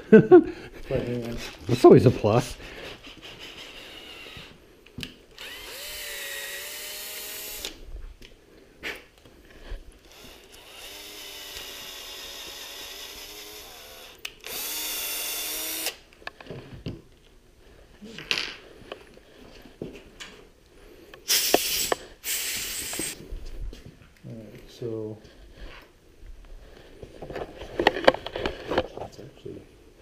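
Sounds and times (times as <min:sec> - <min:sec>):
cordless drill motor running: 0:03.6 - 0:04.6, 0:05.3 - 0:07.8, 0:10.0 - 0:16.0.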